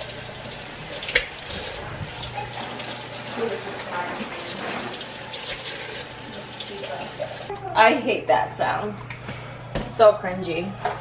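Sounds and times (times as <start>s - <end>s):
faucet running into steel sink: 0.0s - 7.5s.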